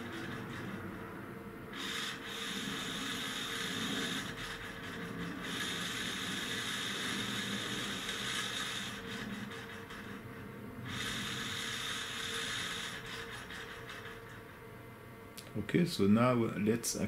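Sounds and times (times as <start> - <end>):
servo motor and gears whirring: 1.8 - 10.2, 10.9 - 13.6.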